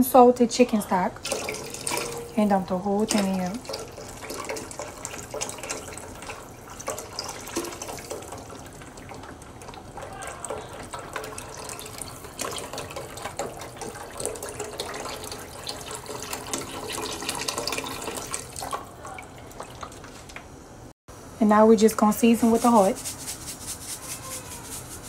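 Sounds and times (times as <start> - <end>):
stock pouring into a pot: 1.2 - 20.2.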